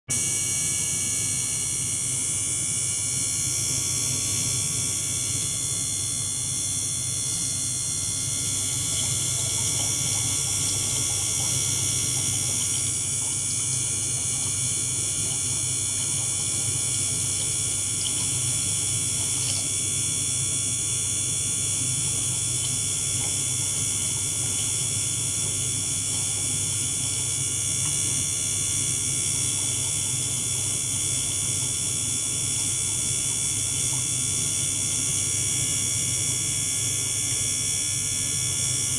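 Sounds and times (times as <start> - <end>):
pump hum: 0.1 - 38.9
steady high-pitched tones: 2.2 - 19.9
water churning and bubbling: 8.2 - 31.8.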